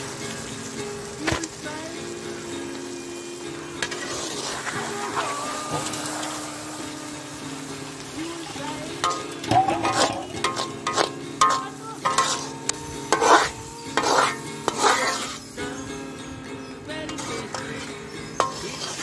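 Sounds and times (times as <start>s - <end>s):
gravy sizzling in a pan: 0.0s - 19.0s
metal ladle scraping a pan: 3.6s - 15.6s, 17.1s - 19.0s.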